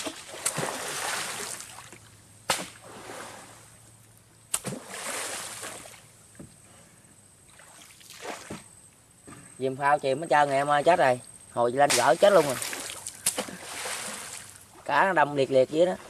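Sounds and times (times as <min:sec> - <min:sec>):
pole slapping water: 0:00.0 - 0:03.3, 0:04.5 - 0:05.9, 0:11.9 - 0:14.6
water splashing: 0:00.0 - 0:03.8, 0:04.5 - 0:06.1, 0:07.5 - 0:08.6, 0:11.8 - 0:14.9.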